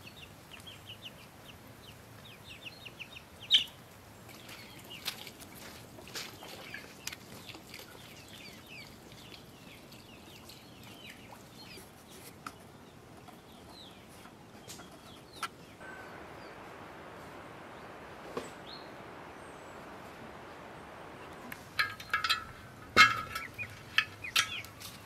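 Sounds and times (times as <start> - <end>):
birds chirping: 0.0 - 25.0
steady rushing noise: 15.8 - 25.0.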